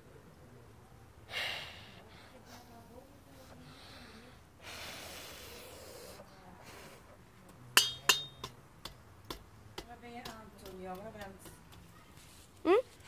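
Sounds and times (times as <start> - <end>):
metal poker clinking on grill: 7.8 - 9.0.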